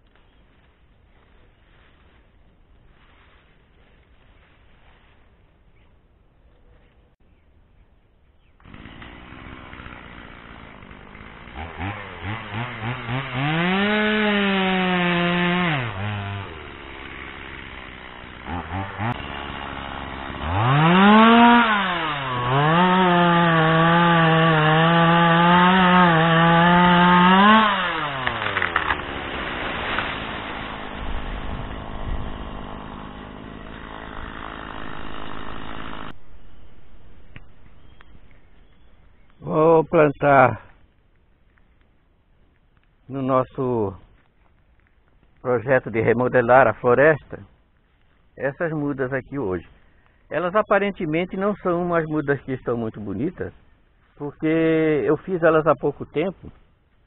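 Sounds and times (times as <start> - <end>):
chainsaw cutting wood: 8.6 - 36.2
chainsaw idling and revving: 8.6 - 36.2.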